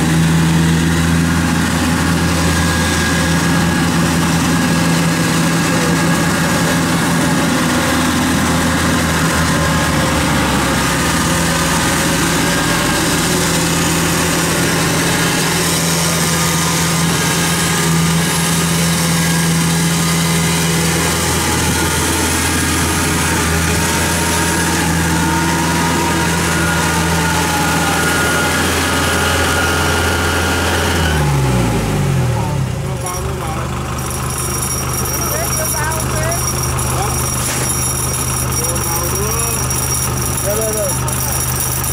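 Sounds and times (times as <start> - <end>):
diesel engine droning: 0.0 - 41.9
high whine: 0.0 - 41.9.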